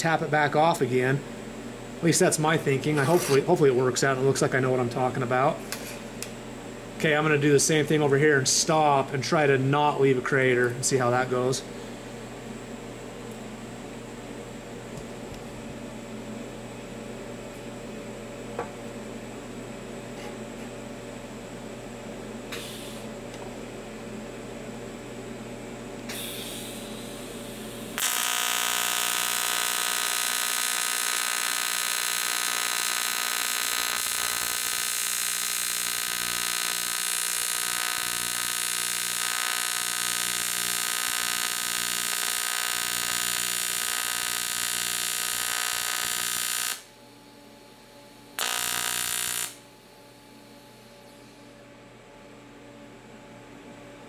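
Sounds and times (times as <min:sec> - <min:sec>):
welding arc buzz: 0:26.1 - 0:46.9, 0:48.4 - 0:49.8.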